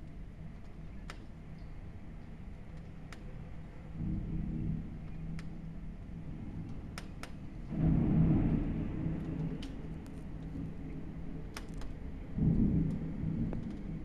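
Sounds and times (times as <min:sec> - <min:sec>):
steady low drone: 0:00.0 - 0:14.0
thunder rumbling: 0:03.6 - 0:14.0.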